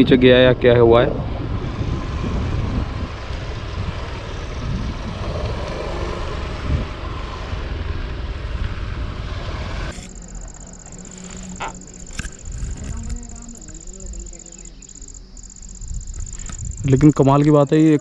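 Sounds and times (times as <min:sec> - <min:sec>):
road noise: 0:00.0 - 0:18.0
wind rushing over microphone: 0:00.0 - 0:18.0
motorcycle engine: 0:01.4 - 0:18.0
high-pitched insect drone: 0:09.9 - 0:18.0.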